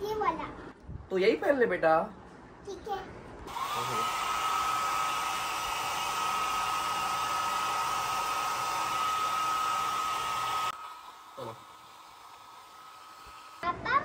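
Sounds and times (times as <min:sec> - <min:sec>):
hair dryer blowing: 0:03.5 - 0:13.6.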